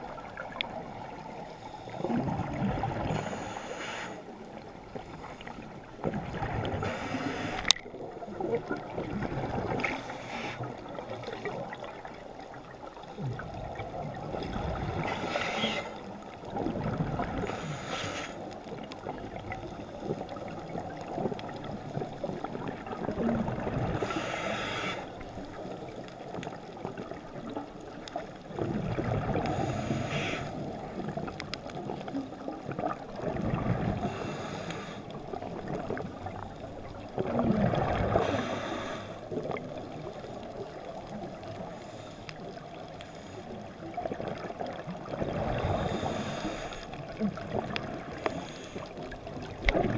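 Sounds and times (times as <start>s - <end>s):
exhaled bubbles rumbling: 0.0s - 3.6s, 4.3s - 49.9s
regulator hissing on inhale: 3.1s - 5.7s, 6.8s - 7.7s, 9.8s - 10.8s, 15.0s - 16.1s, 17.4s - 18.6s, 24.0s - 25.3s, 29.5s - 30.8s, 34.0s - 35.3s, 38.2s - 39.3s, 41.6s - 43.6s, 45.6s - 47.0s, 48.1s - 49.1s.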